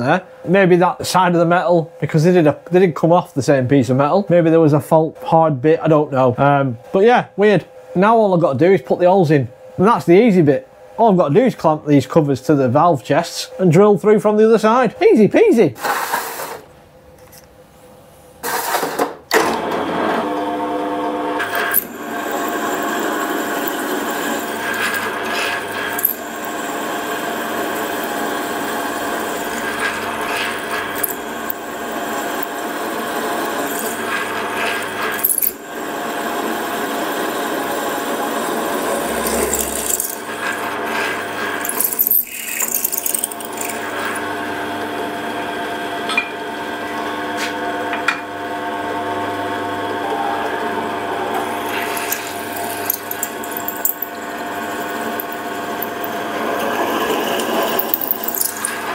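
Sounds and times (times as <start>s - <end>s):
pillar drill motor hum: 19.6s - 45.9s, 47.9s - 58.9s
drill bit cutting steel: 21.4s - 44.2s, 51.3s - 58.9s.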